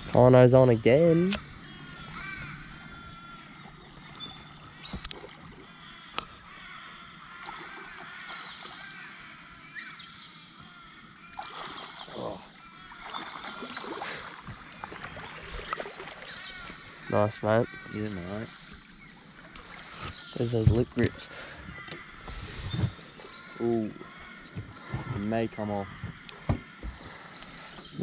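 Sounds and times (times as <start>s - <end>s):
boat noise: 0.0s - 9.2s, 11.2s - 28.0s
birds chirping: 0.0s - 28.0s
water: 0.0s - 28.0s
fish splashing at the surface: 11.4s - 16.7s
sharp knocks: 25.9s - 27.0s.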